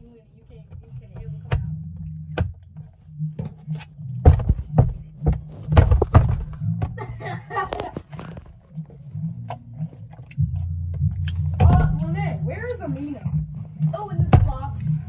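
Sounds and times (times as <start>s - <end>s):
low rumble: 0.1s - 15.0s
phone handling knocks and thuds: 4.2s - 7.0s.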